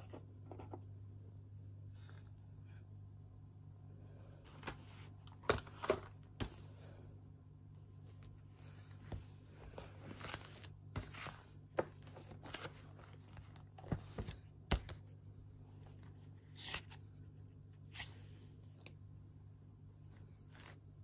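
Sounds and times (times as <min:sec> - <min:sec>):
steady low hum: 0:00.0 - 0:21.0
paper pages rustling: 0:08.1 - 0:15.0.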